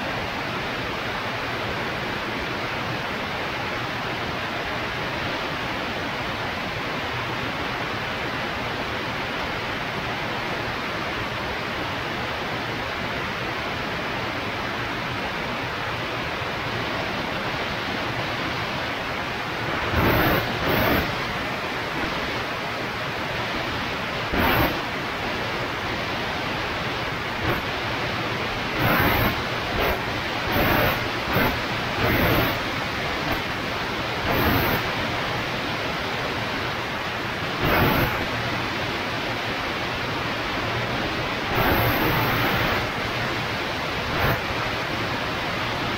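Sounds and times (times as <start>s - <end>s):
aircraft wind rush: 19.6s - 22.6s, 26.9s - 35.0s.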